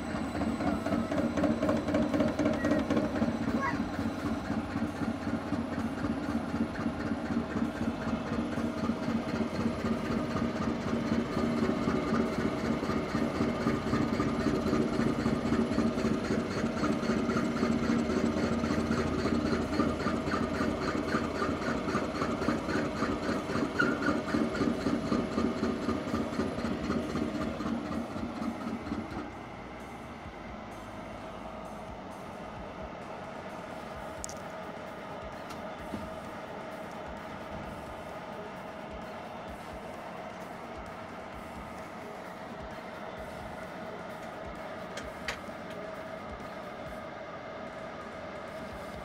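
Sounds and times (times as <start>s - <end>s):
lathe cutting chatter: 0.0s - 30.3s
machine hum: 0.0s - 49.0s.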